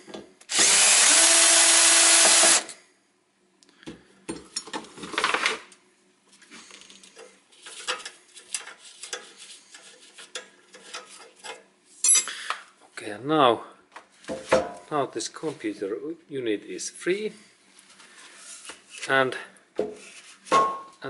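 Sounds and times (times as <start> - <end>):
cordless drill running: 0.5 - 2.7.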